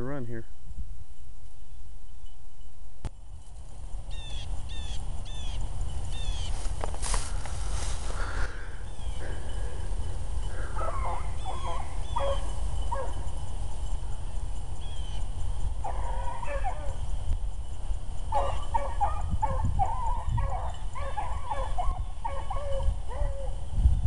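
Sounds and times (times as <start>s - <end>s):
hounds baying: 9.0s - 13.6s, 15.8s - 17.1s, 18.3s - 23.6s.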